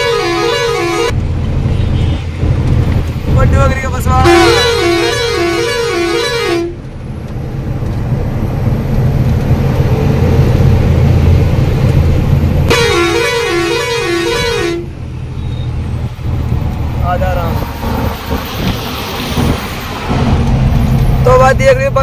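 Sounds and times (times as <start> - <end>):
two-tone air horn warble: 0.0 - 1.2, 4.2 - 6.8, 12.7 - 14.9.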